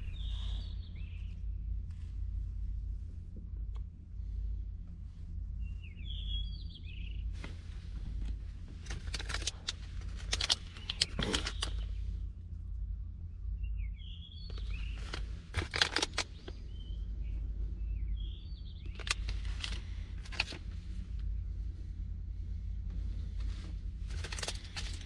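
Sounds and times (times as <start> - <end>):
steady low rumble: 0.0 - 25.0
plastic packaging crinkling: 8.9 - 11.8, 14.5 - 16.5, 19.0 - 20.6, 24.1 - 25.0.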